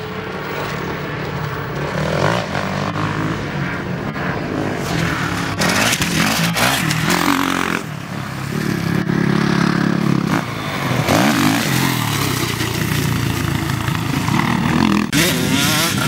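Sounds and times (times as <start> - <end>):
motocross bike engine revving: 4.5 - 16.0.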